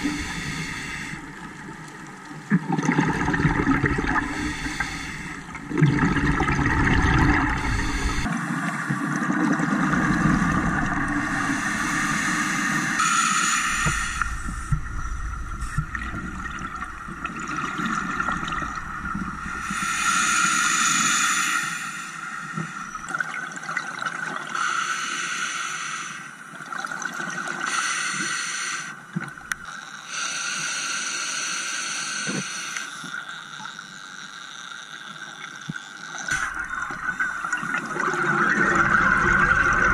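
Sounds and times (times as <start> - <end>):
underwater bubbles gurgling: 0.0 - 13.0, 13.6 - 21.1, 36.1 - 39.9.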